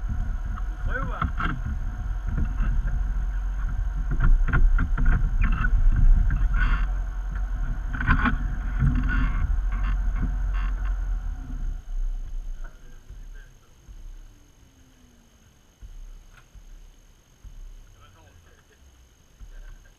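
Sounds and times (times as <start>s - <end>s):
off-road engine idling: 0.0s - 19.9s.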